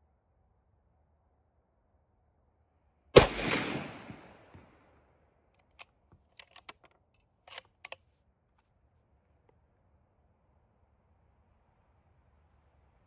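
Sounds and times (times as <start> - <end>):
rifle shot: 3.2 - 4.8
rifle bolt clicking: 5.6 - 8.0.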